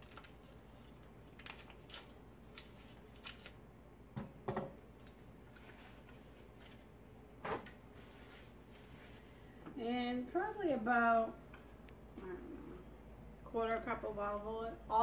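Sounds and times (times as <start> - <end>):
paper wrapper crinkling: 0.0 - 3.6.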